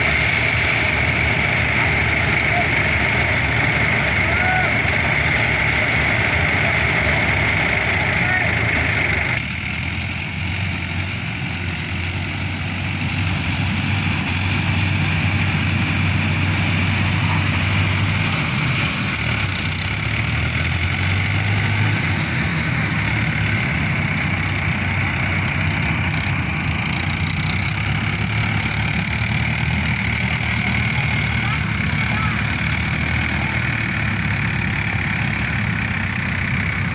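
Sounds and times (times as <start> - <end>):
tractor diesel engine running: 0.0 - 36.9.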